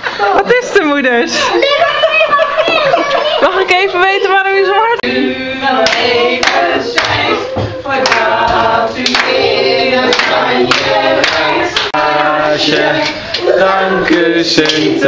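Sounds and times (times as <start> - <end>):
group of people singing: 5.0 - 15.0
people clapping in time: 5.8 - 15.0.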